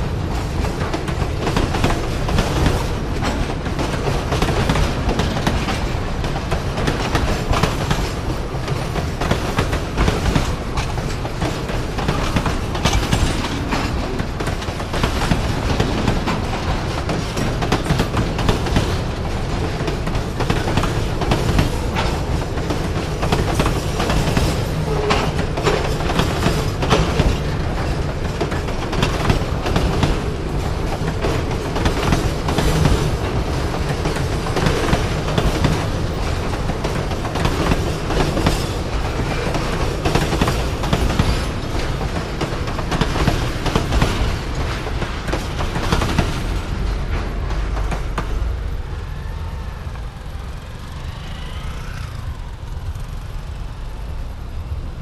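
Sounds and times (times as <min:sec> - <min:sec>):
freight train rumbling past: 0:00.0 - 0:55.0
wheels clattering over rail joints: 0:00.0 - 0:55.0.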